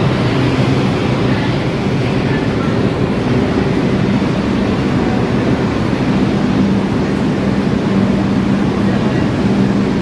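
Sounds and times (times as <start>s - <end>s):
subway train wheels rumbling: 0.0s - 10.0s.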